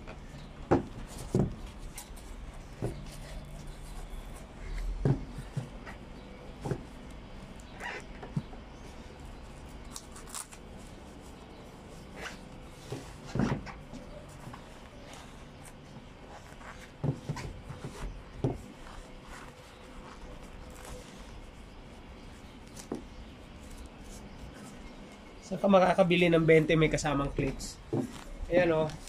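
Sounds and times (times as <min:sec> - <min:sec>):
shoes knocking on wooden deck: 0:05.0 - 0:06.0.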